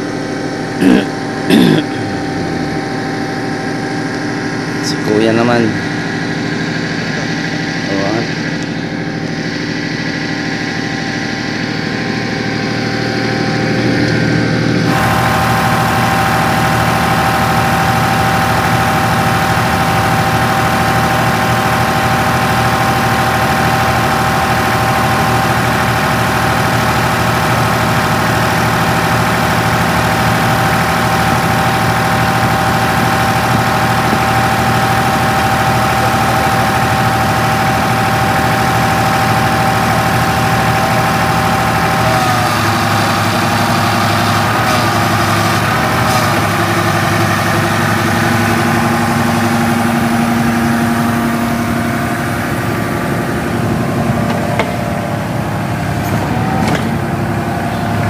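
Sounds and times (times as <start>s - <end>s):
diesel engine running: 0.0s - 58.0s
steady high whine: 0.0s - 58.0s.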